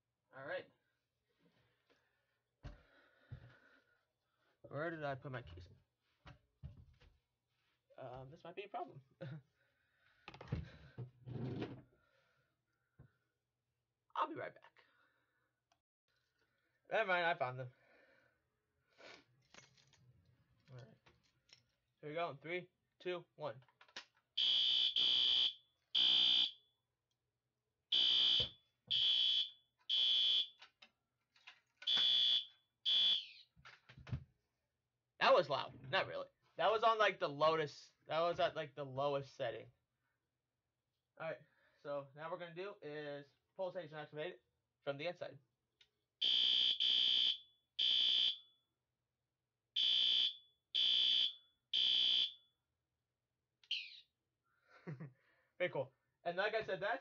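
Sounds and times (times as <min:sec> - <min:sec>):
fire alarm horn blasts: 0:24.4 - 0:26.6, 0:27.9 - 0:30.6, 0:31.8 - 0:33.4, 0:46.2 - 0:48.4, 0:49.8 - 0:52.4.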